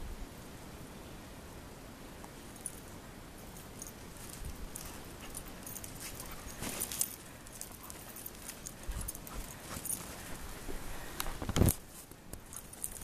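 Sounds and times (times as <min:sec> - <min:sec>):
dog paws crunching in snow: 0:03.4 - 0:13.0.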